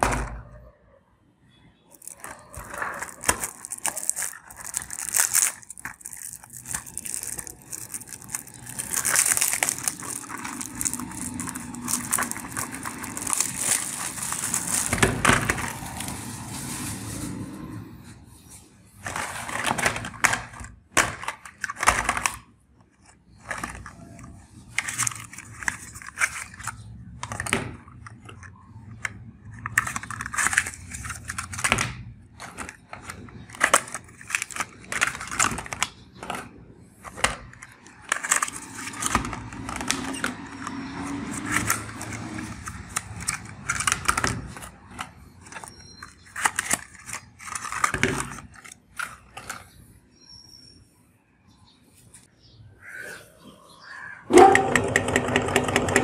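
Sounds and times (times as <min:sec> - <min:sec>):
packaging crinkling: 0:01.9 - 0:17.7, 0:18.9 - 0:49.8
cardboard cartons tearing: 0:02.0 - 0:17.3.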